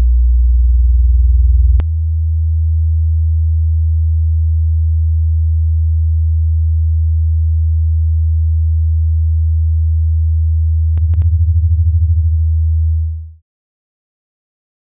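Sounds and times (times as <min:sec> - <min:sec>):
low electronic sine tone drone: 0:00.0 - 0:13.4
sharp clicks: 0:11.0 - 0:11.3.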